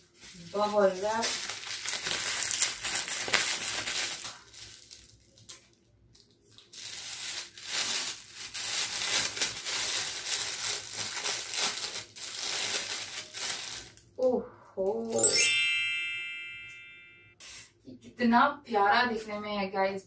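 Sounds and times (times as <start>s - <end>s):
bubble wrap crinkling: 0.0s - 14.2s.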